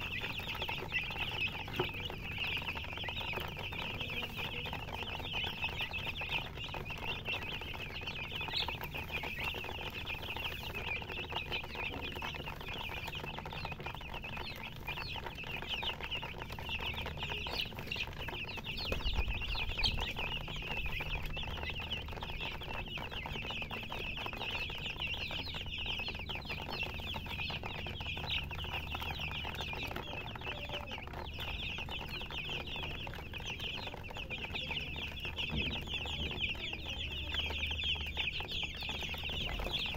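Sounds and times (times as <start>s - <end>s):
baby chicks peeping: 0.0s - 39.9s.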